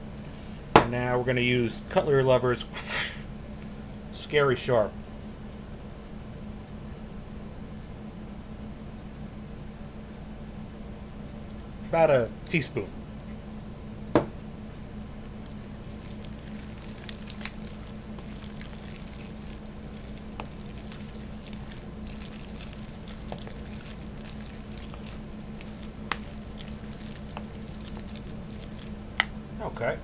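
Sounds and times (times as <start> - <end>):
steady low hum: 0.0 - 30.0
fork mashing paste in plastic bowl: 15.4 - 29.3.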